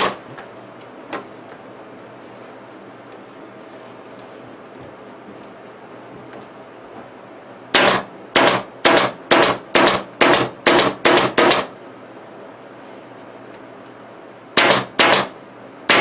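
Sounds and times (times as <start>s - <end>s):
pneumatic staple gun firing: 0.0s - 0.2s, 7.7s - 11.7s, 14.6s - 16.0s.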